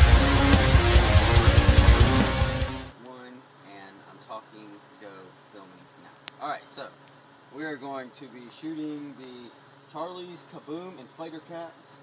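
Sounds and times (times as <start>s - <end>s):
electric guitar music: 0.0s - 2.9s
insects chirping: 0.0s - 12.0s.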